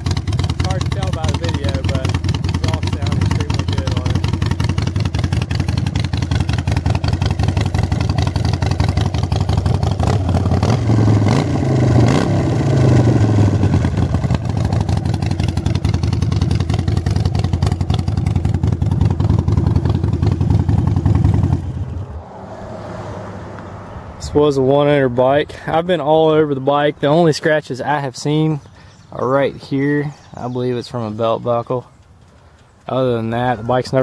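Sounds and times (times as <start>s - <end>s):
motorcycle engine idling: 0.0s - 22.1s, 28.6s - 34.0s.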